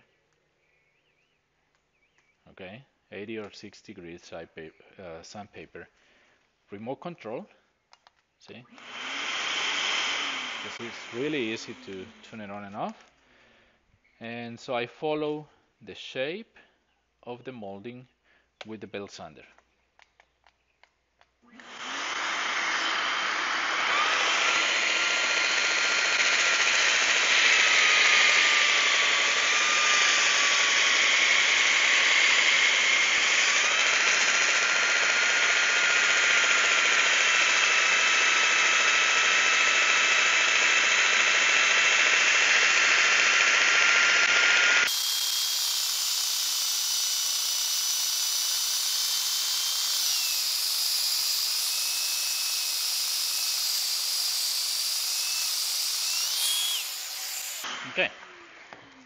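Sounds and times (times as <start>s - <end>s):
belt sander whining: 8.7s - 13.2s, 21.5s - 59.0s.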